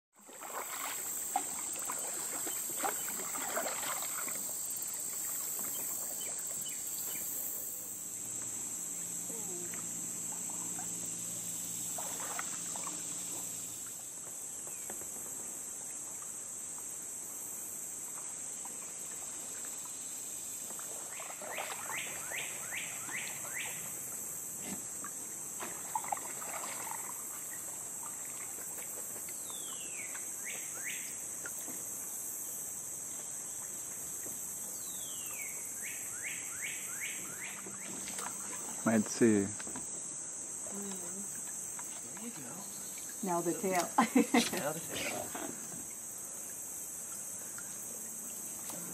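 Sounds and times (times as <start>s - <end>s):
kayak paddles splashing: 0.1s - 48.9s
high-pitched insect drone: 0.5s - 14.1s.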